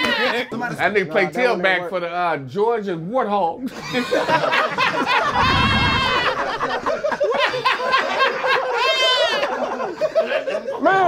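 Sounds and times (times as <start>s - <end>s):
men laughing: 3.7s - 5.4s, 6.0s - 10.8s.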